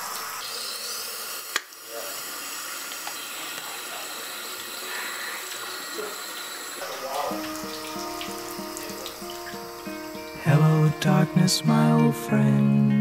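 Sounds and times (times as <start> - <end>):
faucet running into sink: 0.0 - 10.8.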